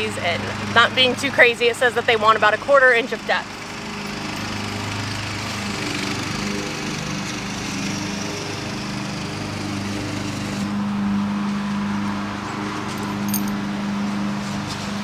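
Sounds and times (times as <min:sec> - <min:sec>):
small gasoline engine running: 0:02.0 - 0:10.8.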